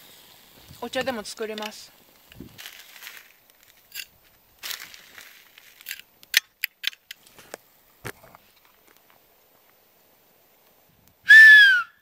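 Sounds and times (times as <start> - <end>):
plastic bag rustling: 0.0 - 6.1.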